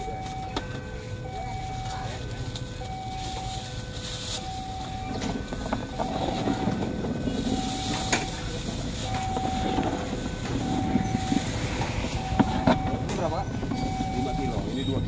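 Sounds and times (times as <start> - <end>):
train rumbling past: 4.6 - 15.0.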